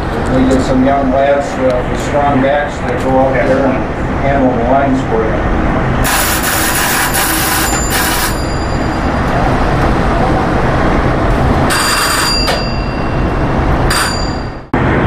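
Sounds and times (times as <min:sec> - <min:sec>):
low rumble of ship machinery: 0:00.0 - 0:15.0
bell ringing in short bursts: 0:07.1 - 0:09.2, 0:11.7 - 0:14.7.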